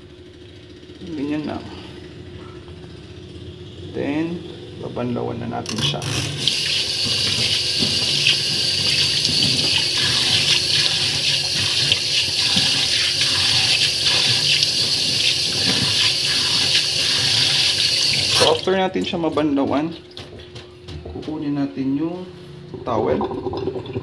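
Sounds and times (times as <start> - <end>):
tap running into steel sink: 6.4 - 18.6
water splashing on skin: 6.4 - 18.7.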